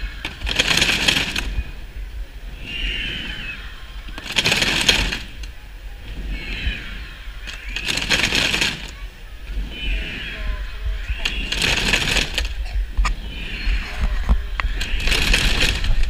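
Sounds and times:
children shaking rattles: 0:00.0 - 0:01.9, 0:04.0 - 0:05.6, 0:07.4 - 0:09.7, 0:10.7 - 0:13.1, 0:13.8 - 0:16.0
children shouting: 0:00.0 - 0:16.0.

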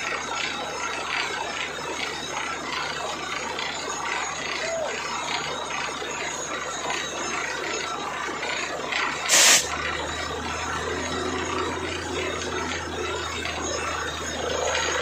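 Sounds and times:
drilling rig running: 0:00.0 - 0:15.0
repeating mechanical clatter: 0:00.0 - 0:15.0
loud burst of noise: 0:09.3 - 0:09.9.

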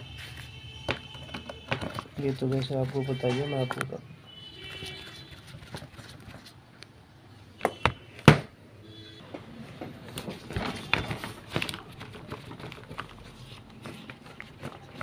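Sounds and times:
plastic clicks and knocks: 0:00.9 - 0:02.8.

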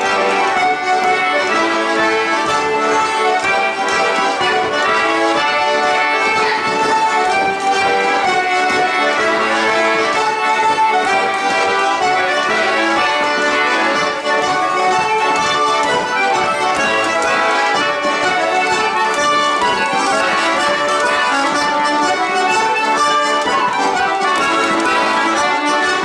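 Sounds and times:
folk dance tune on squeezeboxes: 0:00.0 - 0:26.0.

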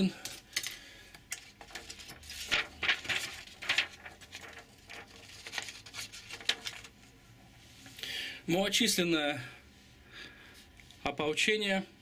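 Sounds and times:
plastic parts clicking and rustling: 0:00.2 - 0:07.0.

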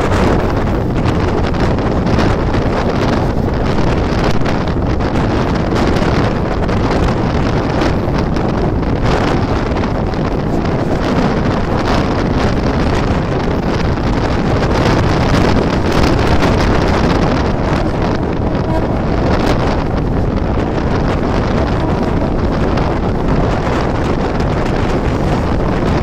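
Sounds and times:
train running on rails: 0:00.0 - 0:26.0
wind buffeting microphone: 0:00.0 - 0:26.0.

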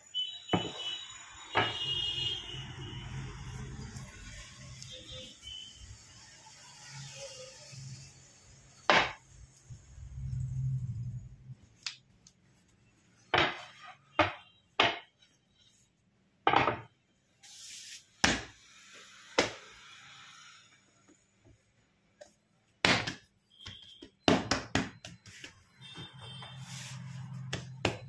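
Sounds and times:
dough knocks and slaps: 0:08.9 - 0:09.2, 0:13.3 - 0:15.1, 0:22.8 - 0:25.6.

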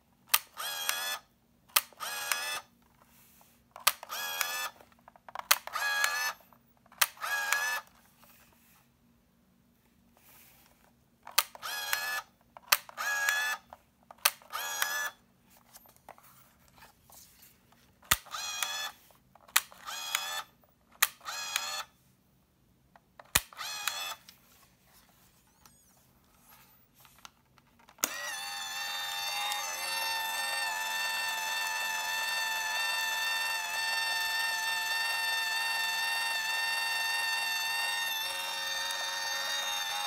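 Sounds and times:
camera shutter click: 0:00.3 - 0:01.2, 0:03.8 - 0:04.8, 0:19.5 - 0:20.4, 0:21.0 - 0:21.9, 0:23.3 - 0:24.2
film winding motor whir: 0:00.3 - 0:08.0, 0:11.3 - 0:15.2, 0:18.1 - 0:21.9, 0:23.3 - 0:24.2, 0:27.9 - 0:40.0.

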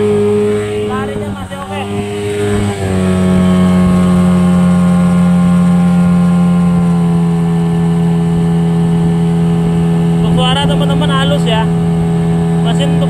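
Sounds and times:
outboard motor running: 0:00.0 - 0:13.0.

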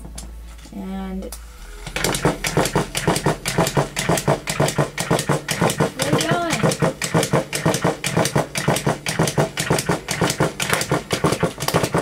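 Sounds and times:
rhythmic clicking clatter: 0:01.4 - 0:12.0
toy motor humming: 0:01.6 - 0:10.3.

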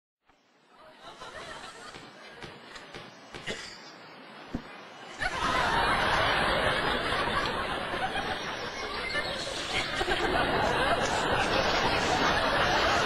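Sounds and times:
audience laughter: 0:00.8 - 0:03.0, 0:05.0 - 0:13.0.

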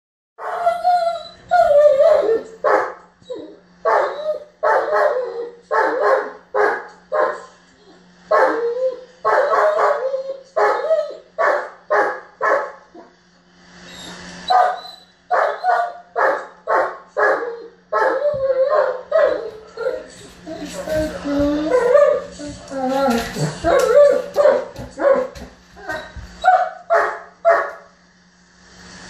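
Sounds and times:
dog whining yowls: 0:00.4 - 0:02.6, 0:03.2 - 0:06.1, 0:07.8 - 0:11.3, 0:17.2 - 0:20.6
dog barking: 0:02.6 - 0:03.0, 0:03.8 - 0:07.5, 0:08.3 - 0:08.6, 0:09.2 - 0:10.0, 0:10.6 - 0:10.8, 0:11.4 - 0:12.8, 0:14.5 - 0:19.4, 0:23.7 - 0:25.4, 0:26.4 - 0:27.9.

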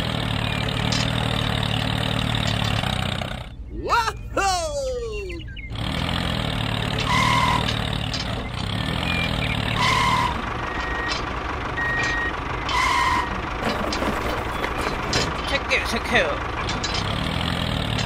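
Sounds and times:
tractor engine running: 0:00.0 - 0:18.0
reversing beeper: 0:07.0 - 0:07.8, 0:09.0 - 0:11.2, 0:11.8 - 0:13.4.

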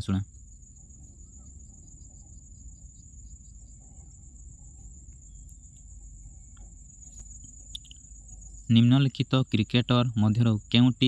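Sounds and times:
faint clicks: 0:06.5 - 0:08.0.

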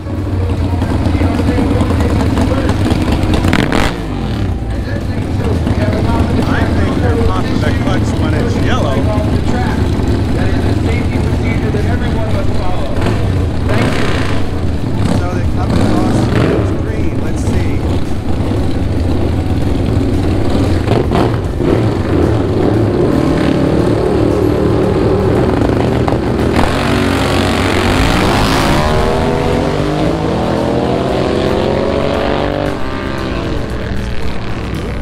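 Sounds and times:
motorcycle engines revving: 0:00.0 - 0:35.0
motorcycles accelerating and shifting gears: 0:00.0 - 0:35.0.

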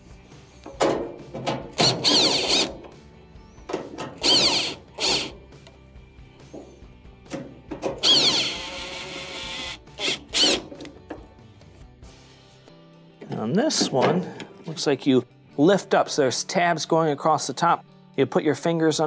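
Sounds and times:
cordless driver motor whining: 0:01.8 - 0:02.7, 0:04.2 - 0:05.3, 0:08.0 - 0:10.6.

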